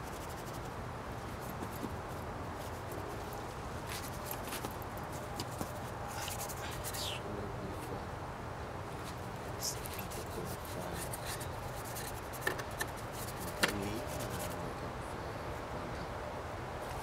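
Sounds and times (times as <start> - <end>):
paintbrush rubbing and dabbing: 0.0 - 7.1, 9.6 - 14.6
outdoor background noise: 0.0 - 17.0.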